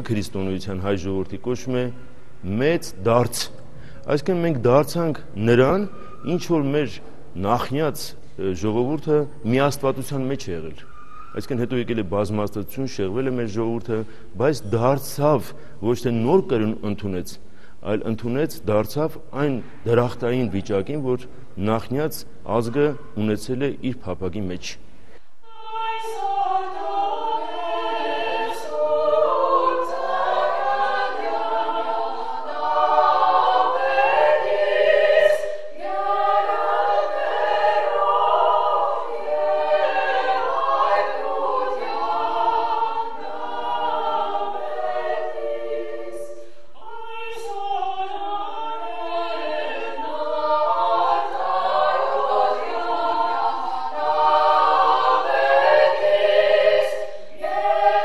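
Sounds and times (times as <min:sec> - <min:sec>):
women's choir singing a cappella: 0:25.4 - 0:58.0.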